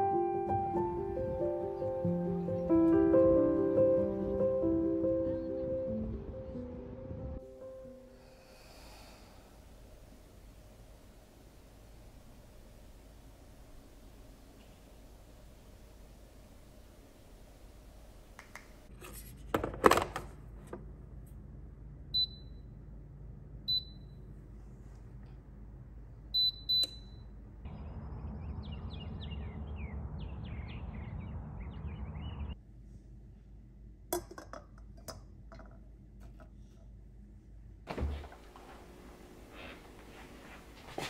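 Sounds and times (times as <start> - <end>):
birds chirping: 27.7 - 32.6
steady outdoor rush: 27.7 - 32.6.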